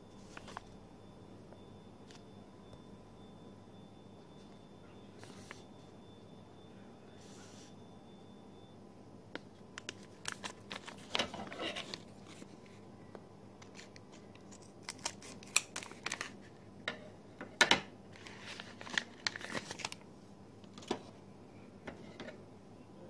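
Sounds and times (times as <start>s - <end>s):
plastic crinkling and rustling: 0.2s - 0.7s, 9.8s - 12.8s, 13.6s - 16.6s, 18.1s - 20.0s.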